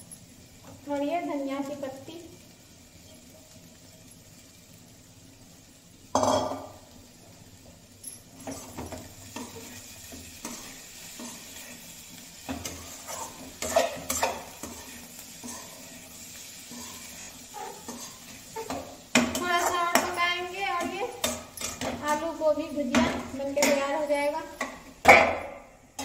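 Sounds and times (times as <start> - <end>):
faint sizzle: 0.0 - 26.0
metal plate clanking on pan: 6.2 - 6.8, 12.4 - 15.8
metal spatula scraping pan: 8.4 - 24.7.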